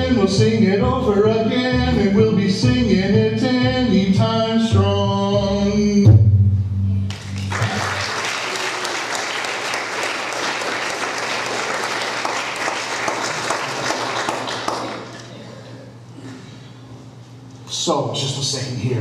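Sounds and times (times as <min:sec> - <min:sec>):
audience applauding: 0:07.1 - 0:15.4.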